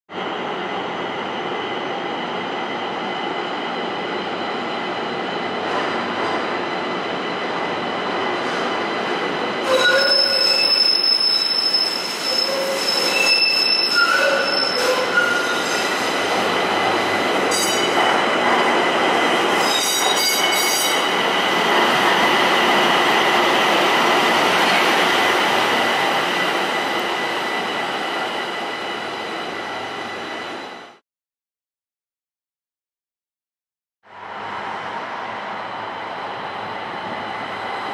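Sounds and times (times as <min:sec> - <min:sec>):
rail car whine and running noise: 0:00.1 - 0:31.0, 0:34.0 - 0:37.9
train wheels squealing: 0:09.6 - 0:16.2, 0:17.5 - 0:18.0, 0:19.5 - 0:21.4.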